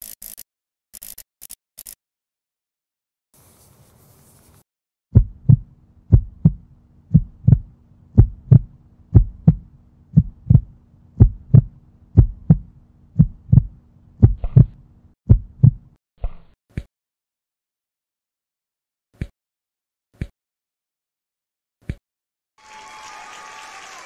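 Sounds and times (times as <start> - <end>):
heartbeat thumps: 5.1 - 16.0.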